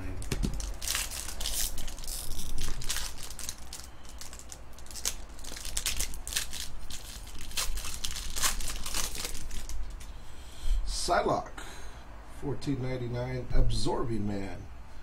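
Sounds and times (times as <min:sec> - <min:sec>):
foil wrapper crinkling: 0:00.0 - 0:10.1.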